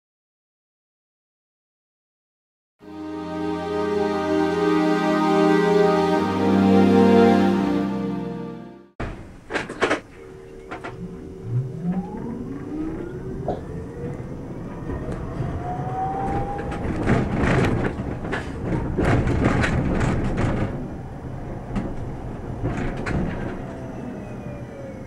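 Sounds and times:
tram motor whine: 2.8 - 8.9, 10.4 - 25.0
wheels clicking over rail joints: 14.6 - 24.0.

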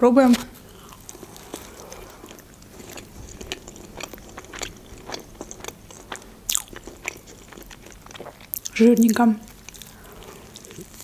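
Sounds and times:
soft wet chewing: 0.6 - 11.0.

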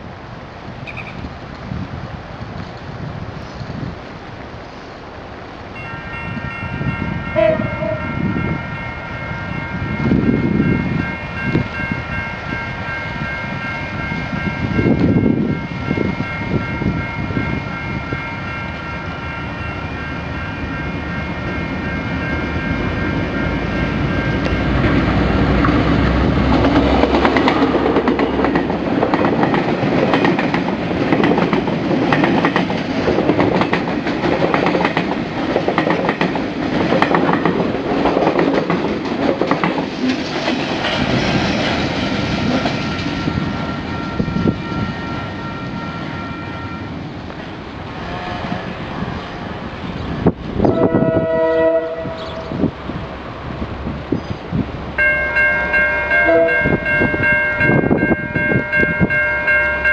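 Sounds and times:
diesel locomotive engine rumble: 0.0 - 59.9
level-crossing bell ringing: 5.8 - 25.4, 55.0 - 59.9
train wheels clacking over rail joints: 24.4 - 43.2.

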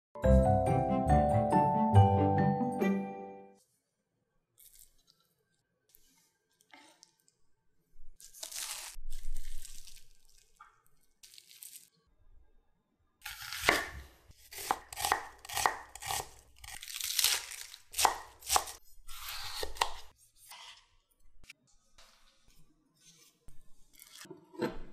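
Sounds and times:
knife cutting on wooden board: 13.2 - 16.8, 18.0 - 20.8.

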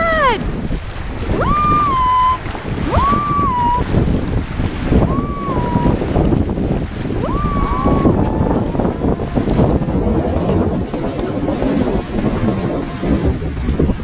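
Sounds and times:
rushing sea water: 0.0 - 14.0
wind on microphone: 0.0 - 14.0
high whistle-like calls: 1.4 - 3.9.

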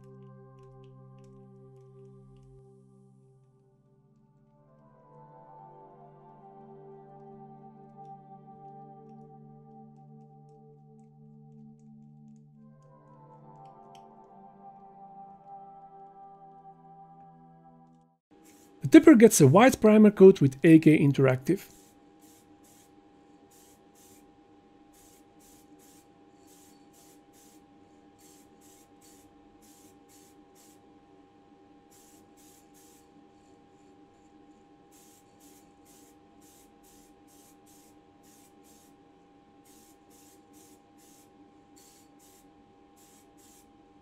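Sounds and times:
spray can hissing bursts: 18.4 - 19.0, 21.6 - 22.9, 23.5 - 24.3, 24.9 - 27.6, 28.2 - 30.8, 31.9 - 33.1, 34.9 - 39.0, 39.6 - 43.7
faint hum: 18.4 - 44.0.

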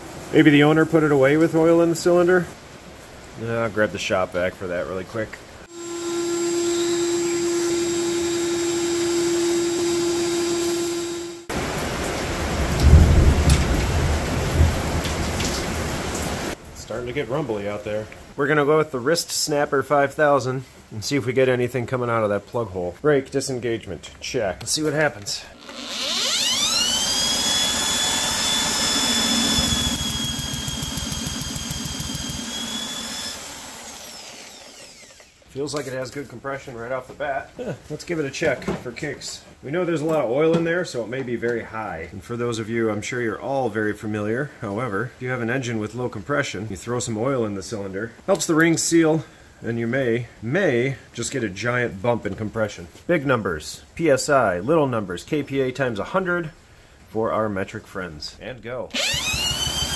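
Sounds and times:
steady rain: 0.0 - 5.7, 11.5 - 18.9
shop vac whining: 5.7 - 11.5, 25.3 - 35.8, 58.9 - 59.9
low rumble of thunder: 12.5 - 15.4
engine turning over pulsing: 25.7 - 35.3, 59.0 - 59.9.

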